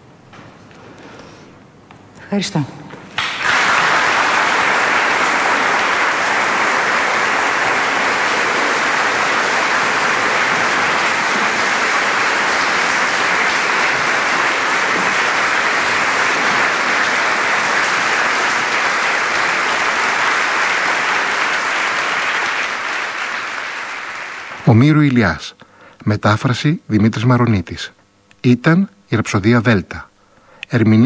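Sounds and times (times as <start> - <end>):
audience applauding: 3.1 - 25.2.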